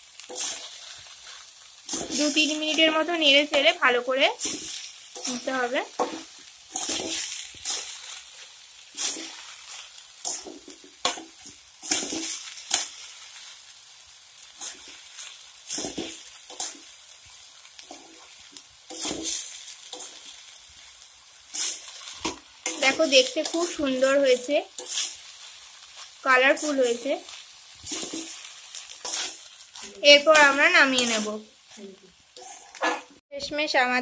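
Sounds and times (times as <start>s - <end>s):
light sizzle: 0.0s - 34.0s
metal spatula scraping pan: 0.2s - 13.1s, 17.8s - 20.3s, 21.5s - 31.4s, 32.4s - 33.1s.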